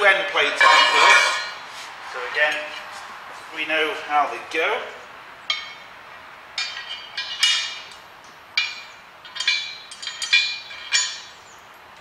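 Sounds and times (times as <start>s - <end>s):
metal bolts clinking: 0.4s - 1.6s, 5.5s - 5.8s, 6.6s - 8.0s, 8.6s - 11.4s.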